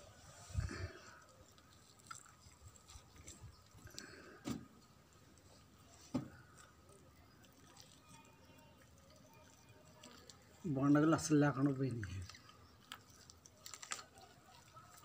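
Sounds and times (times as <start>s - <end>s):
chicken skin pulled by hand: 12.3s - 15.0s.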